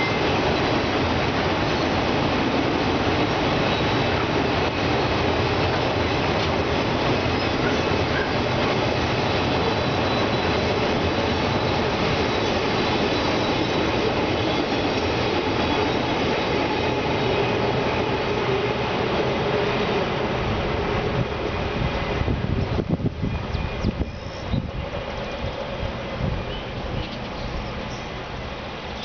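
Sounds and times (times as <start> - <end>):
train wheels squealing: 0.0 - 0.8, 1.6 - 2.1, 3.4 - 5.3, 7.0 - 18.2, 23.2 - 29.0
freight train wheels rumbling: 0.0 - 29.0.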